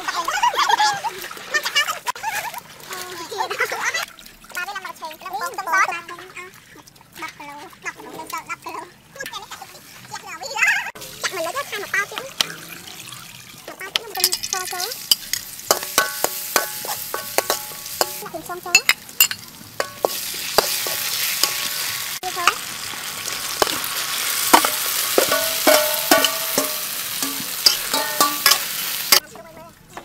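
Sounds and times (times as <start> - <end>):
food sizzling in a wok: 11.0 - 29.2
ladle scraping a pan: 14.0 - 22.6, 23.4 - 29.2.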